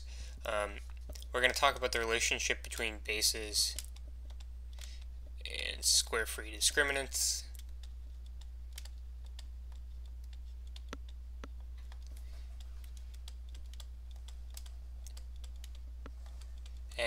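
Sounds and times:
steady low hum: 0:00.0 - 0:17.0
stylus tapping on tablet screen: 0:07.7 - 0:16.7.

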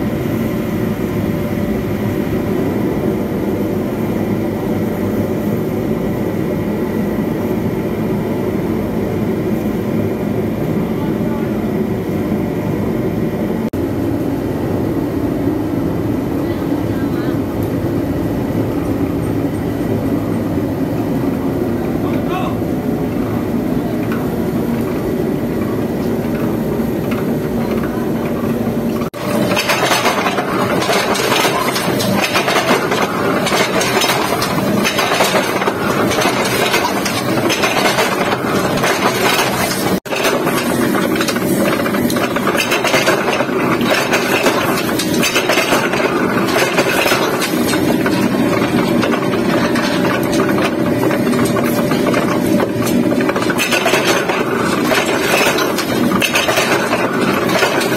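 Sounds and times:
forging press clattering: 0:23.9 - 0:57.9.

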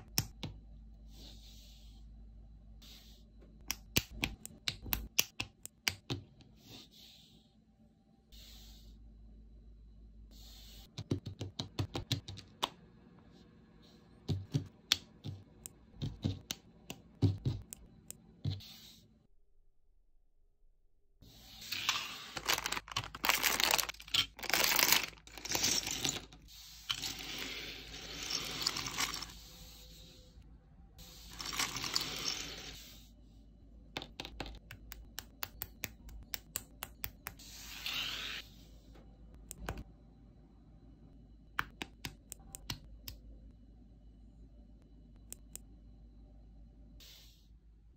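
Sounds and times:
plastic parts rustling: 0:21.9 - 0:27.5, 0:28.2 - 0:29.3.

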